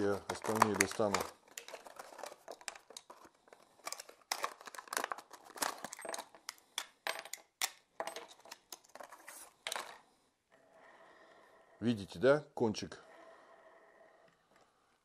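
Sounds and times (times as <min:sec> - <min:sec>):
plastic case clicking and crinkling: 0:00.0 - 0:10.0.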